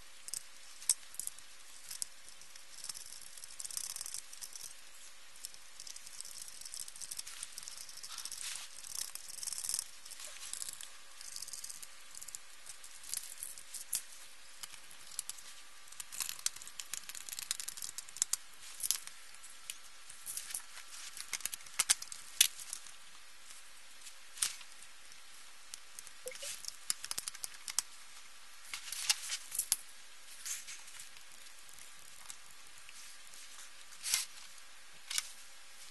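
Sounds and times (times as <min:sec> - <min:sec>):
rustling scrapes: 0:07.2 - 0:09.0
clicks and light taps: 0:26.2 - 0:27.9.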